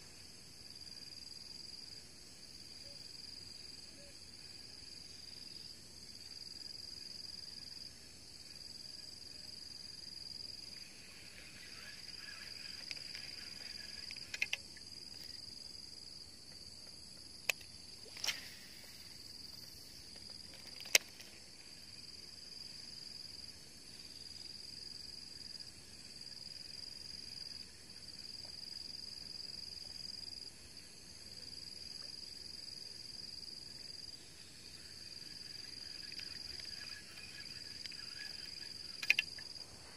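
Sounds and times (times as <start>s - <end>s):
high-pitched insect chorus: 0.0s - 39.9s
sharp clicks: 12.8s - 14.6s, 20.2s - 21.3s, 37.7s - 39.5s.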